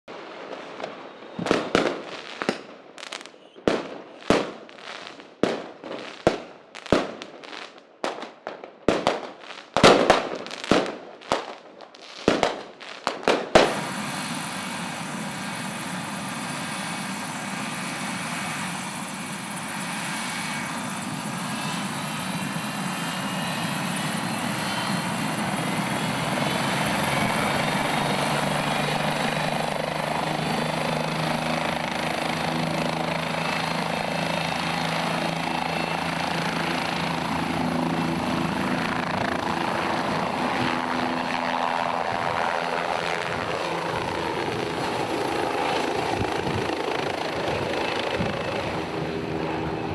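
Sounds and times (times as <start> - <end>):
helicopter engine and rotor whine: 13.6 - 49.9.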